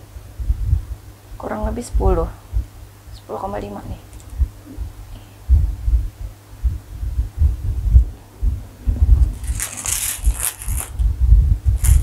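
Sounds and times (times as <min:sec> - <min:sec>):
metal chain strap rattling: 0:09.4 - 0:10.9.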